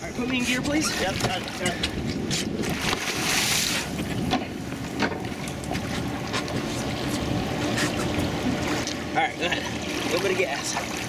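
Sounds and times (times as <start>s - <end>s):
water slapping and trickling: 0.0s - 11.0s
fish thrashing and splashing: 0.7s - 4.2s
boat engine idling: 3.9s - 11.0s.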